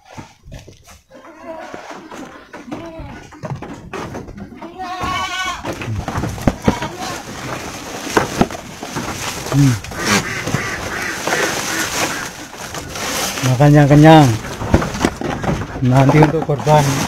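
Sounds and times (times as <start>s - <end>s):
goat bleating: 1.1s - 3.4s, 4.5s - 5.8s, 6.4s - 7.4s
animals knocking against boards: 2.0s - 12.9s, 14.2s - 17.0s.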